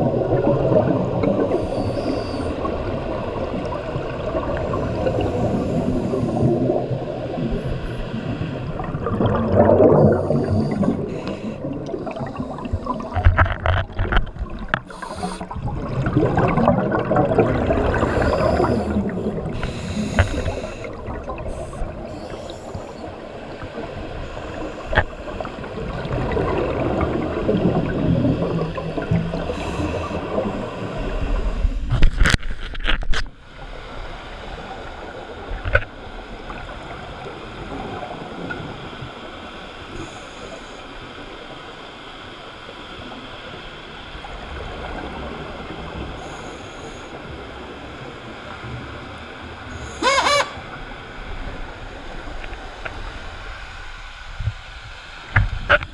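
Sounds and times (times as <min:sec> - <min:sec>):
underwater regulator bubbles: 0:00.0 - 0:23.0, 0:24.4 - 0:32.3.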